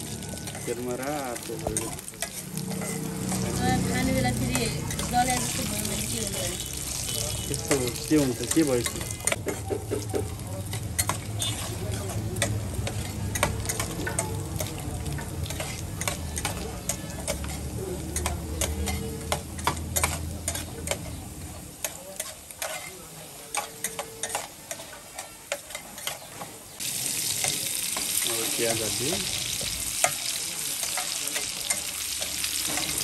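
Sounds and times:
meat sizzling in hot oil: 0.0s - 33.0s
metal spatula scraping pan: 0.3s - 9.8s, 10.7s - 26.5s.

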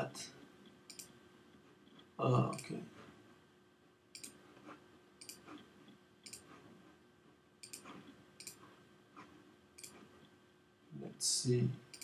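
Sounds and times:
computer mouse clicking: 0.9s - 1.2s, 4.2s - 6.6s, 7.6s - 10.1s.

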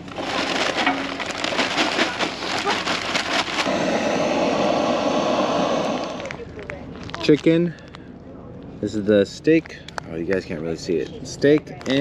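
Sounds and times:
charcoal briquettes clattering: 0.0s - 3.9s
blowtorch hissing: 3.6s - 6.4s.

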